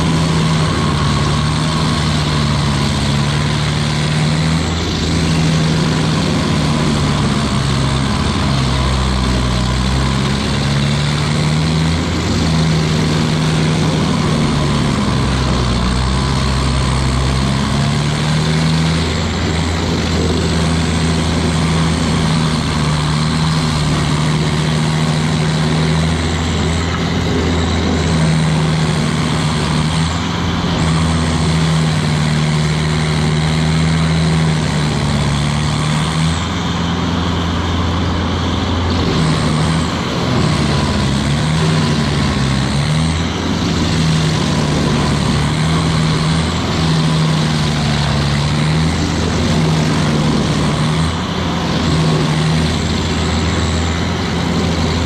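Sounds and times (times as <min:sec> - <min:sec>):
cutter wheel grinding stump: 0:00.0 - 0:55.0
stump grinder engine: 0:00.0 - 0:55.0.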